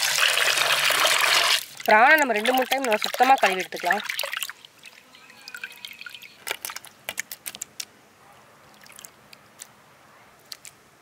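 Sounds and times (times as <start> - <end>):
hand swishing water in pot: 0.8 - 4.5
water drips: 1.5 - 7.9, 8.6 - 9.8.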